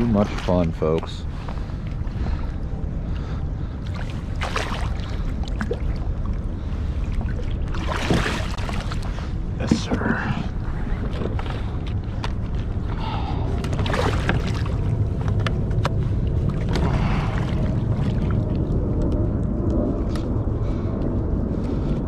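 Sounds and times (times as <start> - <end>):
water noise: 0.0 - 22.0
wind rumble: 0.0 - 22.0.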